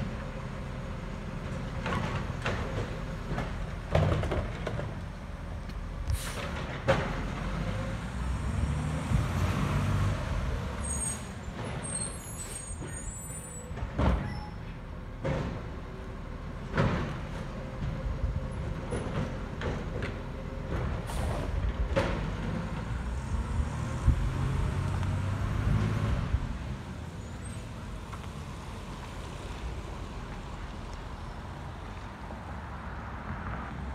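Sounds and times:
air brakes hissing: 6.0 - 6.6, 10.8 - 14.6, 21.1 - 21.5.

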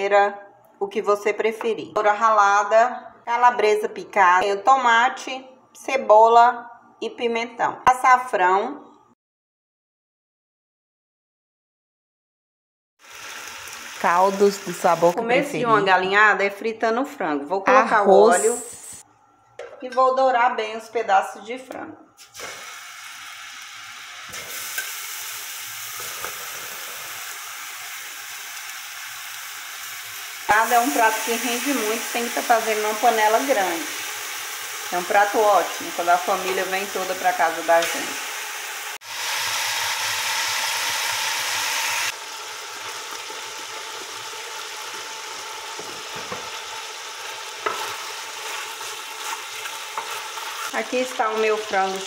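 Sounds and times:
chicken sizzling in hot oil: 13.0 - 15.2, 22.2 - 52.0
wooden spoon scraping pot: 47.6 - 52.0.

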